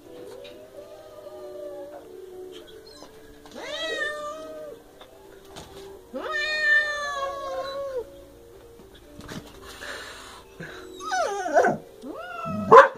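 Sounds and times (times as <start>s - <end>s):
cat yowling: 0.8s - 2.0s, 2.6s - 4.8s, 6.1s - 8.1s, 11.0s - 12.9s.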